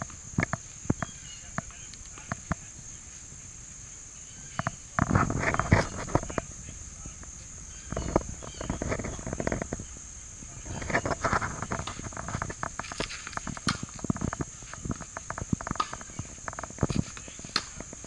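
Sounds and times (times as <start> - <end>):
insects droning: 0.0 - 18.0
crackling and clicks: 10.8 - 18.0.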